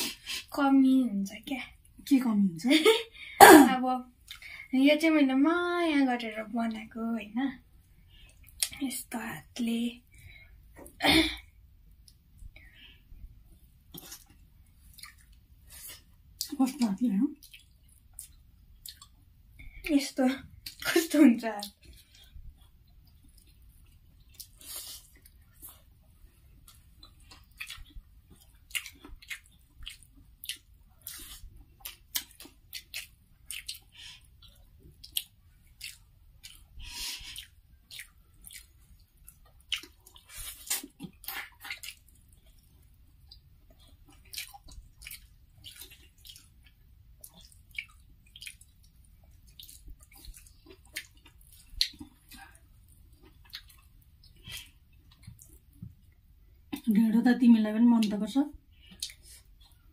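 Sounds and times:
wet smacking and chewing: 7.8 - 8.8, 11.8 - 21.0, 21.6 - 56.9, 58.0 - 59.9.

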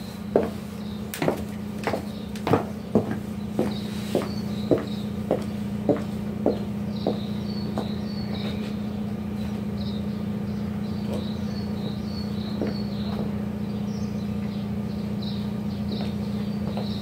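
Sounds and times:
small birds chirping: 0.0 - 17.0
steady low hum: 0.0 - 17.0
high heels on stone paving: 1.2 - 8.8, 12.4 - 13.4, 15.9 - 17.0.

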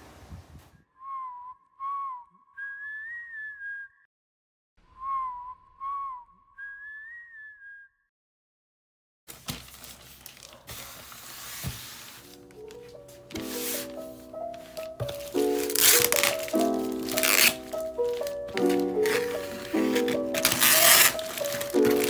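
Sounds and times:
whistled phrase: 0.9 - 4.1, 4.8 - 8.1.

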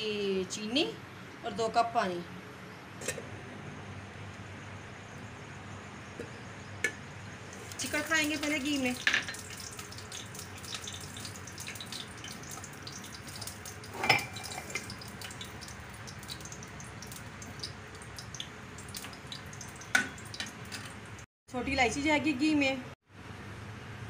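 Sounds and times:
ghee crackling in a pan: 7.4 - 21.2.

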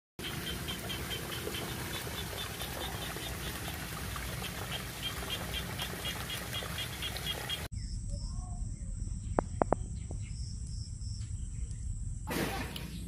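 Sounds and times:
muddy water rushing: 0.2 - 7.7.

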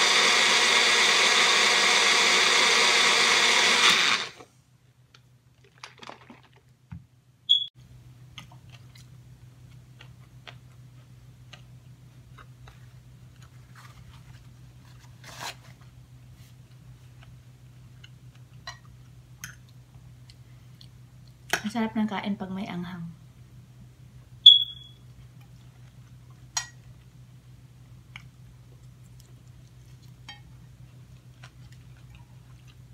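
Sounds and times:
low steady hum: 4.5 - 32.9
chewing: 31.0 - 32.9.

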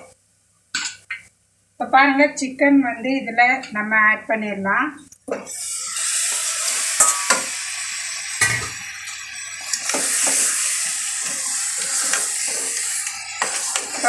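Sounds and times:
chicken sizzling in hot oil: 5.5 - 14.0
spoon clinking against pot: 7.0 - 7.5.

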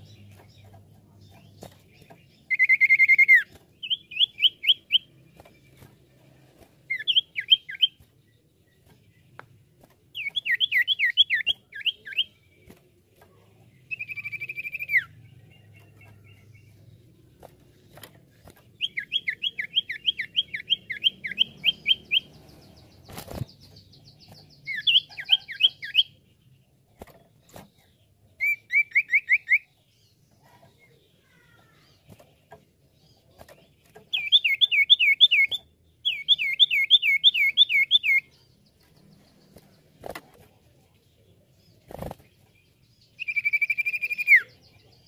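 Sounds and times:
bird singing whistles and chirps: 2.4 - 5.1, 6.9 - 8.0, 10.2 - 12.4, 13.9 - 15.2, 18.8 - 26.2, 28.4 - 29.8, 34.1 - 38.4, 43.0 - 44.8.

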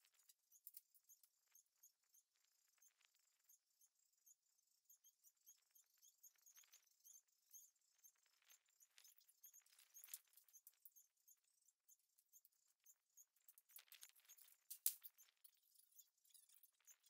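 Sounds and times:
light clicks: 13.6 - 15.6.

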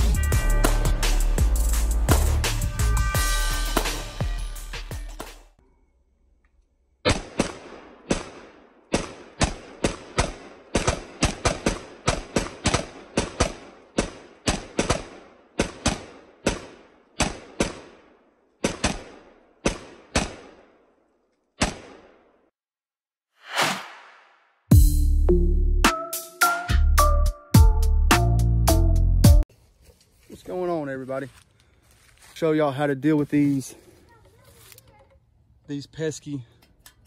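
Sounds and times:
pistol shots with echo: 7.0 - 20.8.

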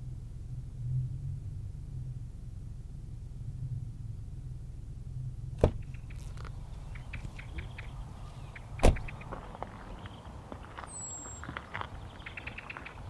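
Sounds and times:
steady low hum: 0.0 - 13.0
car door slamming shut: 5.6 - 5.9, 8.8 - 9.2
footsteps crunching: 6.1 - 13.0
car door latch click: 8.8 - 9.1.

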